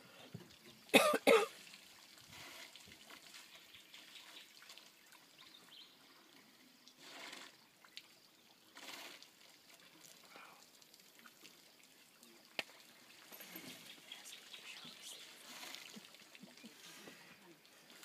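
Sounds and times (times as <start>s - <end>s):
faint trickling water: 0.0s - 18.0s
person coughing: 1.0s - 1.5s.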